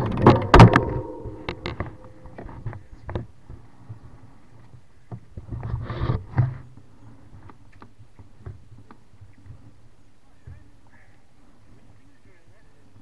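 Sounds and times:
mountain bike rattling: 0.0s - 2.3s
hard knock: 0.1s - 2.4s.

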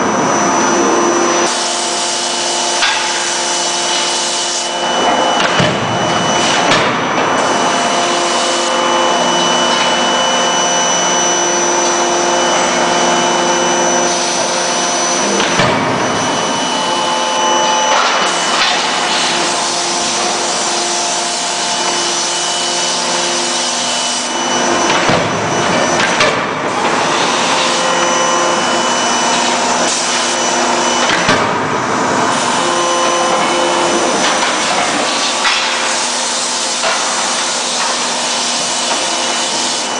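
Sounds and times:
forge machinery humming: 0.0s - 39.9s.

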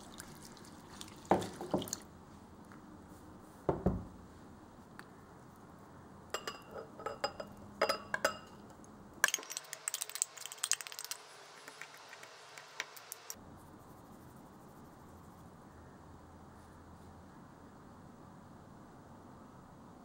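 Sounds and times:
fork clinking in tin can: 9.2s - 11.0s.

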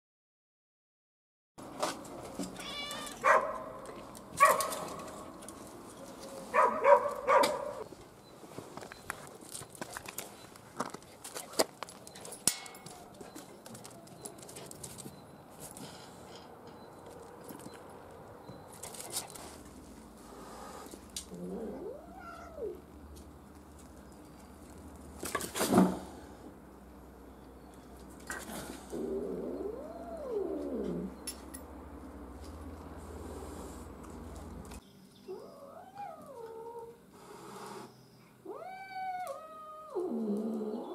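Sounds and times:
cat yowling: 2.6s - 3.4s, 21.4s - 22.8s, 38.5s - 40.1s
small dog barking: 3.2s - 3.8s, 4.4s - 5.1s, 6.5s - 7.8s.

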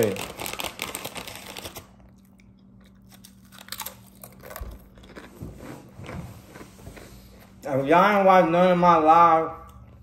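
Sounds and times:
person chewing: 2.0s - 7.6s.

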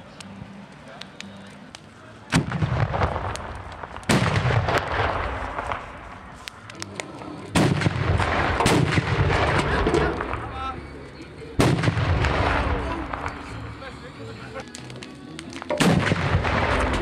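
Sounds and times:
carbide cannon bangs with echo: 2.3s - 5.9s, 7.5s - 10.5s, 11.6s - 13.3s, 15.7s - 17.0s.

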